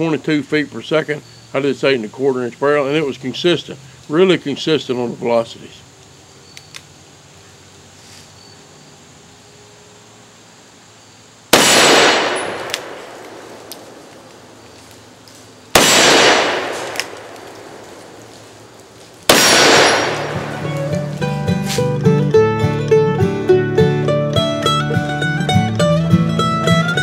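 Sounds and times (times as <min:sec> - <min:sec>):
revolver shots echoing: 0:11.5 - 0:14.6, 0:15.7 - 0:21.1
faint clicks: 0:12.6 - 0:15.4.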